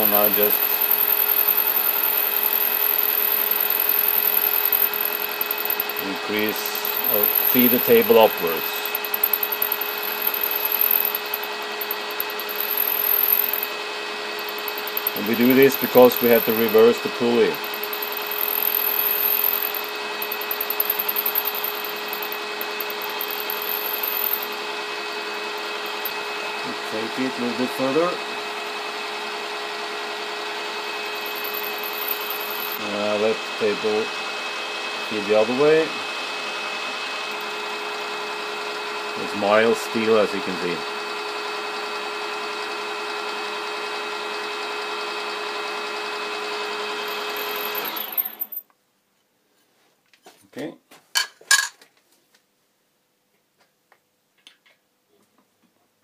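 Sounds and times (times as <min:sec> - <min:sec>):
metal cutting noise: 0:00.0 - 0:28.9, 0:29.6 - 0:34.0, 0:46.4 - 0:48.5
milling machine whine: 0:00.0 - 0:48.6.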